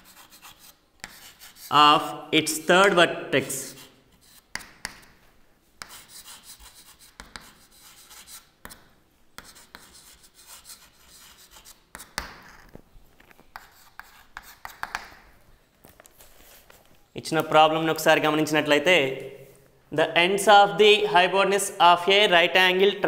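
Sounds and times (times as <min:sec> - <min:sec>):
chalk scratching on chalkboard: 0:00.0 - 0:01.8, 0:03.5 - 0:05.1, 0:05.8 - 0:12.6, 0:13.5 - 0:15.2.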